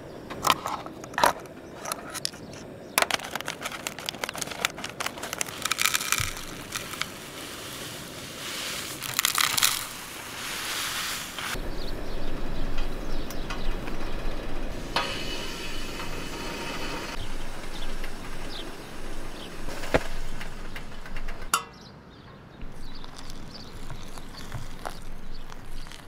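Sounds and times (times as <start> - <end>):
objects being handled clattering: 0.2 - 8.0, 8.7 - 10.2, 22.6 - 26.0
low hum: 11.5 - 21.5.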